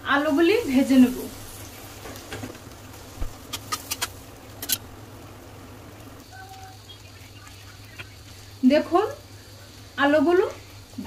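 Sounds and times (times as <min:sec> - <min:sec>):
food frying in hot oil: 0:00.0 - 0:11.0
sharp pops and clicks: 0:02.0 - 0:04.8.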